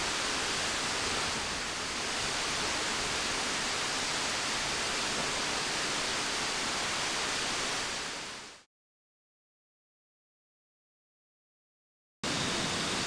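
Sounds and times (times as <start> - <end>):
steady rain hiss: 0.0 - 8.7.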